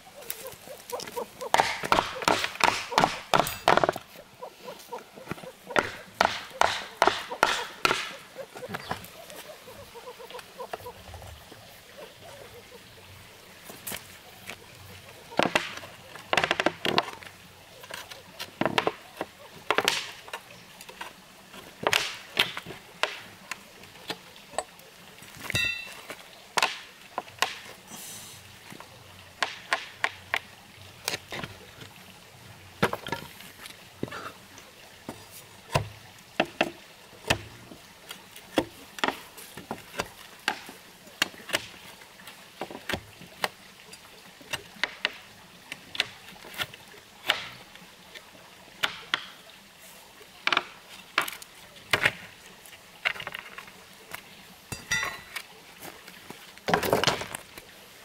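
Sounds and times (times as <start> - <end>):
hand tool chopping wood: 0.9 - 4.0, 5.3 - 9.1, 21.8 - 23.3, 26.6 - 27.6.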